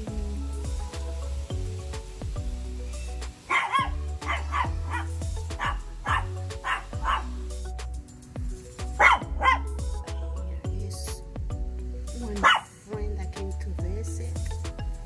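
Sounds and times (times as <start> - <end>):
background music with sustained notes: 0.0 - 15.0
dog barking: 3.5 - 7.4, 9.0 - 9.7, 12.4 - 12.7.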